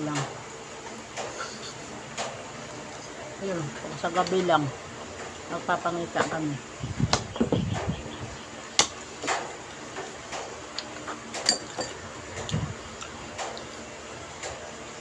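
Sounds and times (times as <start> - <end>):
forks clinking on plates: 11.4 - 12.0.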